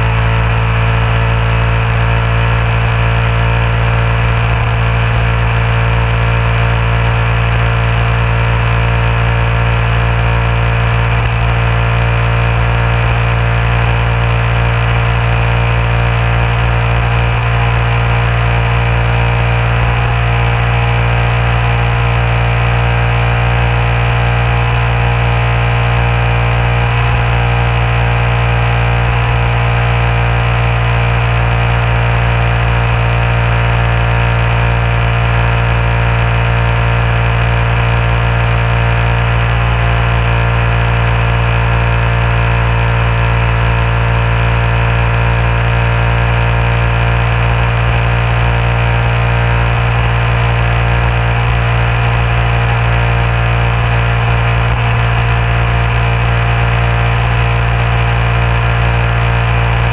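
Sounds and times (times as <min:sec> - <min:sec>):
motorcycle engine cruising: 0:00.0 - 0:59.9.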